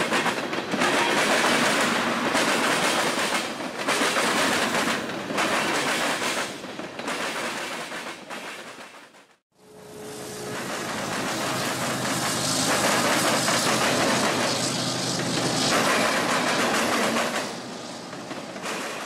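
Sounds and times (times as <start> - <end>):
train wheels rolling on rails: 0.0 - 19.0
diesel locomotive engine drone: 9.5 - 19.0.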